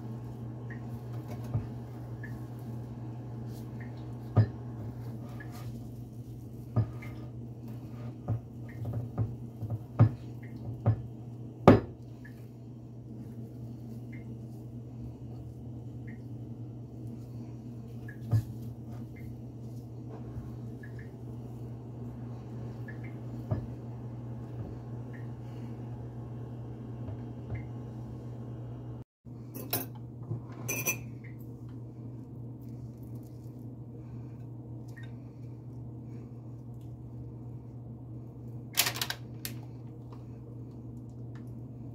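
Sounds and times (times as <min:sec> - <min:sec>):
steady low hum: 0:00.0 - 0:41.9
glass bowl and spoon clinking: 0:30.7 - 0:31.1.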